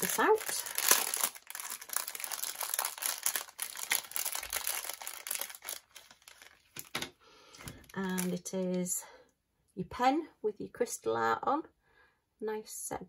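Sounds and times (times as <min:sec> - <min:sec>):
plastic packaging crinkling: 0:00.0 - 0:08.6.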